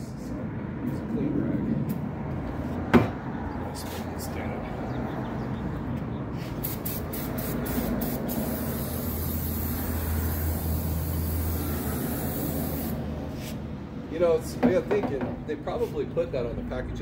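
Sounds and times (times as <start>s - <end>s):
aerosol spray hissing: 6.6s - 13.6s.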